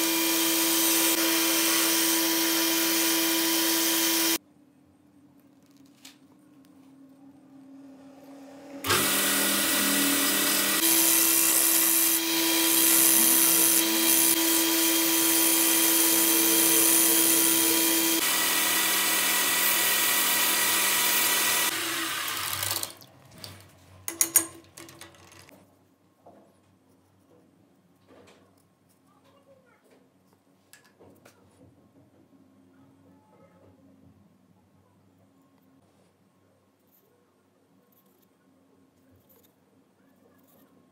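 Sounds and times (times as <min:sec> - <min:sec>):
wood lathe cutting hiss: 0:00.0 - 0:04.4, 0:08.8 - 0:22.9.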